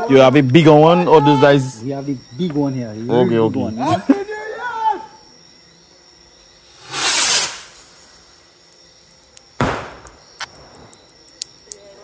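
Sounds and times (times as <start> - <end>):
firework whooshing hiss: 6.6 - 8.4
firework bang: 6.7 - 8.2, 9.6 - 10.2
firework crackling pops: 6.7 - 8.3, 9.6 - 11.0.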